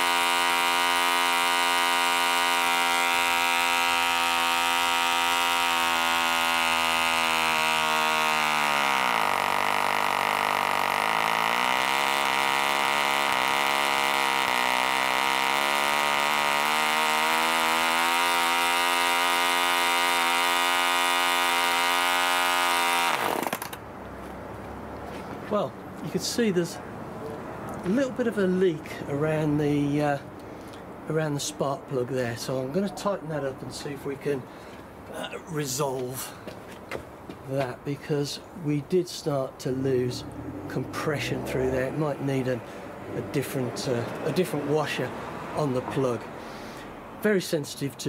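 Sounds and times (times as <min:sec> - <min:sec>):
model engine running: 0:00.0 - 0:23.8.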